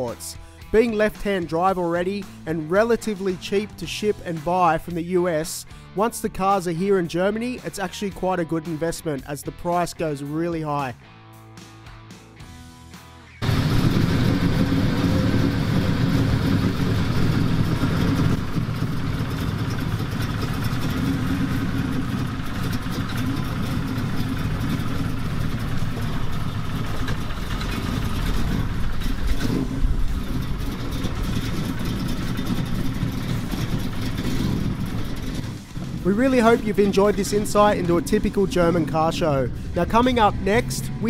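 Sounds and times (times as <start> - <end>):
car engine rumbling: 13.4 - 41.0.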